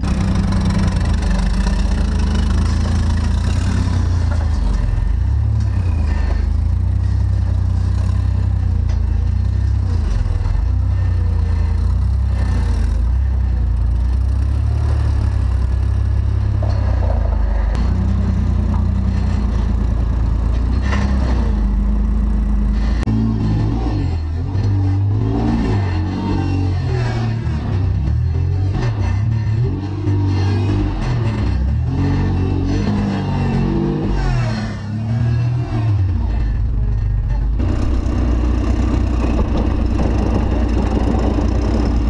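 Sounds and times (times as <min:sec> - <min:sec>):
truck engine low drone: 0:00.0 - 0:42.0.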